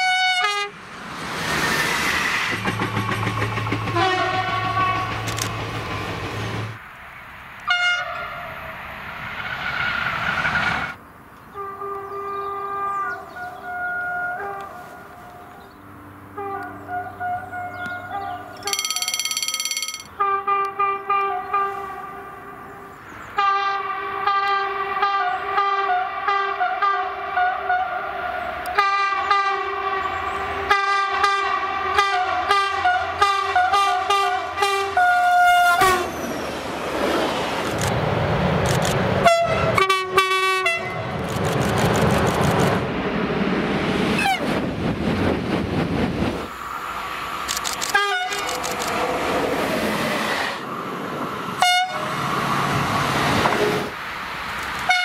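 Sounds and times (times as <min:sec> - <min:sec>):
train horn blasts: 0:00.0 - 0:00.7, 0:03.9 - 0:05.3, 0:16.3 - 0:17.8, 0:30.7 - 0:36.1, 0:39.2 - 0:41.1, 0:48.0 - 0:48.5, 0:51.6 - 0:52.2
train wheel and rail noise: 0:00.0 - 0:11.0, 0:23.4 - 0:55.0.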